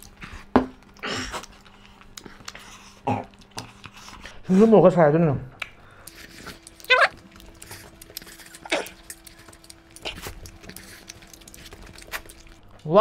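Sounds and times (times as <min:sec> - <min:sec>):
soft chewing: 0:00.0 - 0:04.6, 0:05.6 - 0:12.9
faint steady hum: 0:00.0 - 0:13.0
fingers eating from steel plates: 0:05.6 - 0:13.0.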